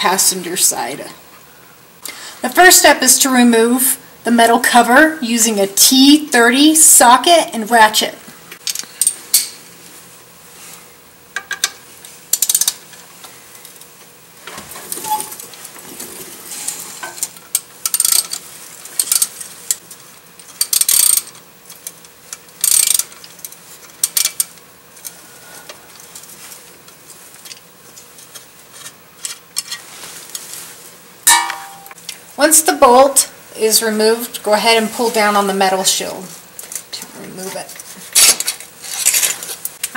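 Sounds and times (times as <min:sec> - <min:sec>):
hand ratchet clicking: 0:12.3 - 0:12.8, 0:17.5 - 0:18.4, 0:19.0 - 0:19.8, 0:20.4 - 0:22.0, 0:22.6 - 0:24.6.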